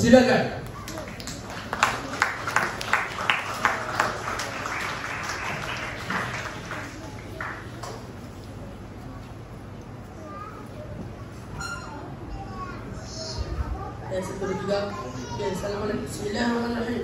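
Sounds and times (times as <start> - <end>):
audience applauding: 0.7 - 8.1.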